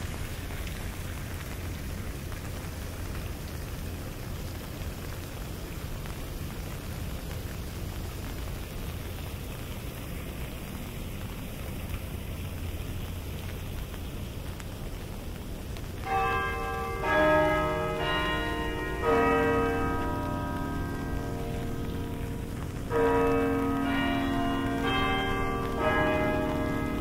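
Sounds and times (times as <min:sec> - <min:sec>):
steady rain: 0:00.0 - 0:27.0
carillon bells playing chords: 0:16.1 - 0:27.0.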